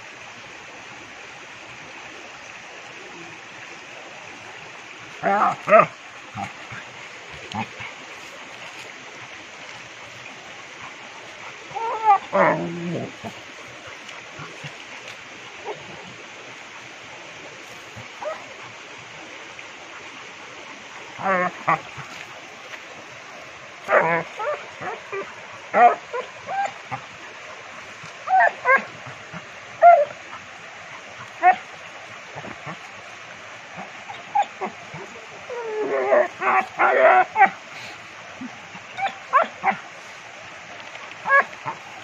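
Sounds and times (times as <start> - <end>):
river water rushing: 0.0 - 42.0
dogs yipping and whining: 11.7 - 13.3, 18.2 - 18.5, 23.9 - 27.0, 28.2 - 30.2, 31.4 - 31.7, 33.8 - 37.6, 38.8 - 39.8, 41.2 - 41.8.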